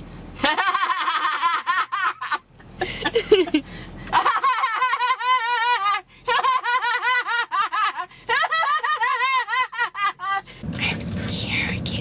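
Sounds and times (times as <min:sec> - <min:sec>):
woman fake laughing: 0:00.4 - 0:10.4
woman breathing: 0:02.8 - 0:04.1, 0:10.4 - 0:11.4.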